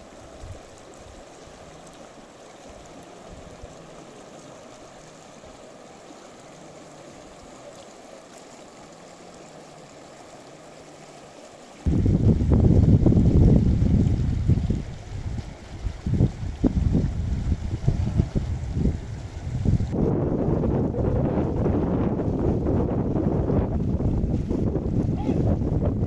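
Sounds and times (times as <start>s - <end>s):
running water rushing: 0.0s - 26.0s.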